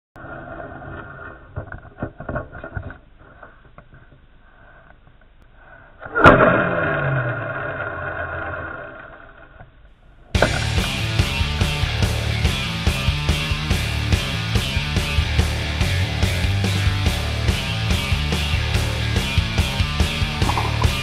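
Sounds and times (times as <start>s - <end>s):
music: 10.4s - 21.0s.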